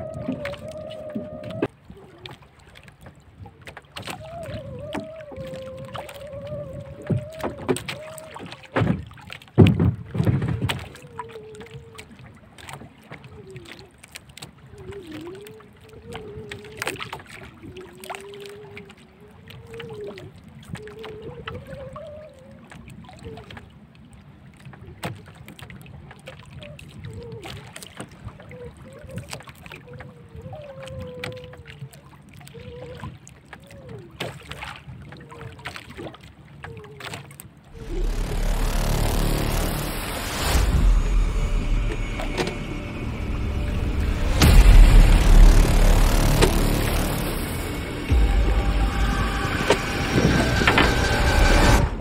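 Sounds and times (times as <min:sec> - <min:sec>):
water sloshing against hull: 0:00.0 - 0:52.0
faint wavering tone: 0:37.8 - 0:52.0.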